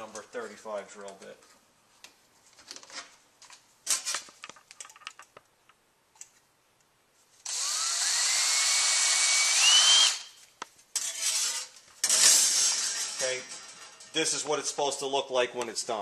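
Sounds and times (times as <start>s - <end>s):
power drill whining: 7.4s - 10.4s.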